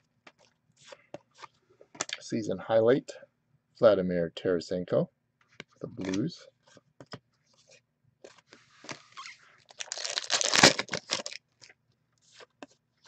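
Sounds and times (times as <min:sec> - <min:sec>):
plastic wrapper tearing and crinkling: 0:09.2 - 0:11.7.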